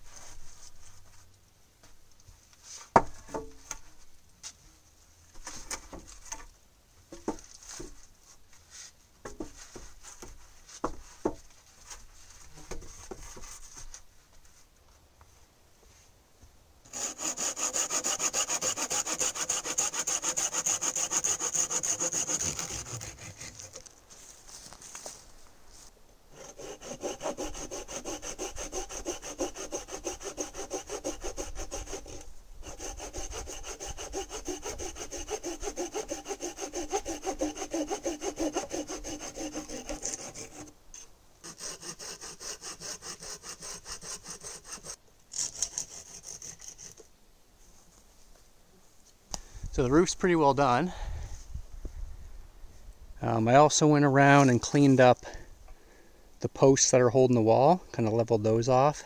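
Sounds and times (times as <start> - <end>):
hand saw cutting wood: 16.9 - 23.9, 26.3 - 47.1.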